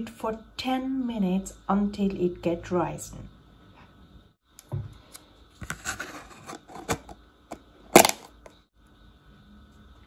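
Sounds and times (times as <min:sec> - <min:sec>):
plastic lid snapping shut: 0:08.0 - 0:08.3.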